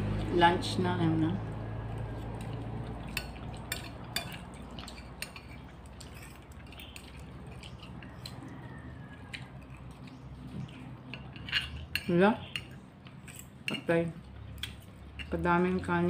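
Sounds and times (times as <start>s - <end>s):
low steady hum: 0.0s - 16.0s
metal spoon scraping dish: 3.1s - 14.0s.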